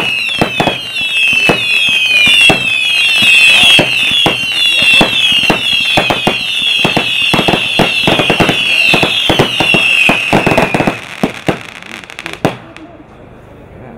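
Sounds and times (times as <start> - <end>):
high falling whistle: 0.0 - 11.0
firework bang: 0.0 - 12.9
fireworks shots and bursts: 0.0 - 12.9.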